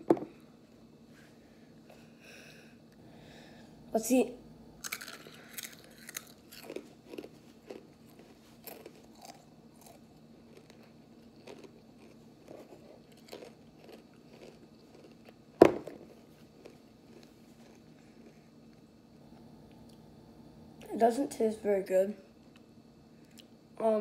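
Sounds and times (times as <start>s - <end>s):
chips being crunched and chewed: 4.8s - 18.8s.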